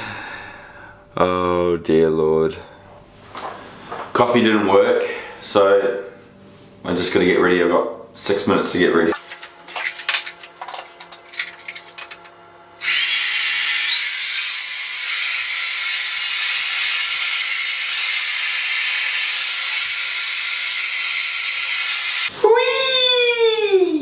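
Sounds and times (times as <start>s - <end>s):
hair dryer running: 12.8s - 22.3s.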